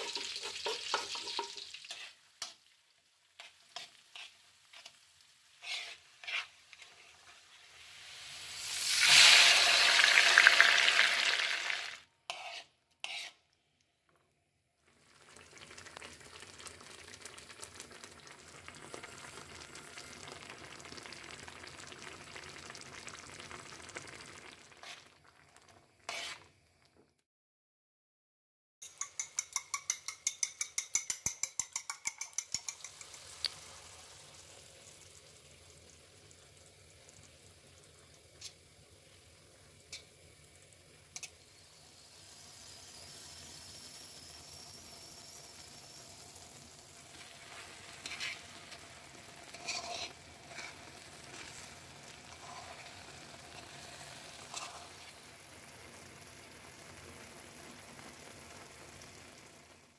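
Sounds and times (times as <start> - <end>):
metal spoon stirring: 0.0 - 2.6, 3.4 - 5.0, 5.6 - 7.4, 12.3 - 13.4, 26.1 - 26.4, 28.8 - 33.5, 47.1 - 55.2
vegetables sizzling in a frying pan: 0.0 - 13.3, 14.8 - 26.8, 32.2 - 59.9.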